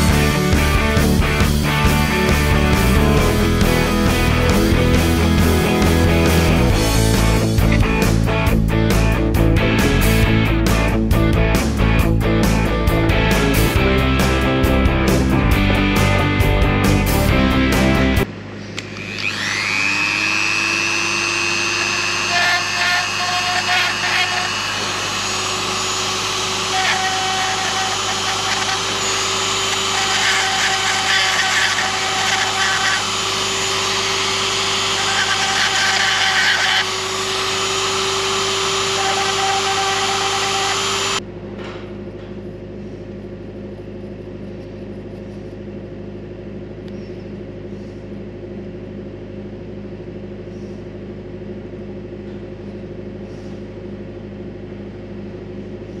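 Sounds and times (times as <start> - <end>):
rotary tool grinding metal: 18.9 - 41.2
steady low hum: 41.1 - 56.0.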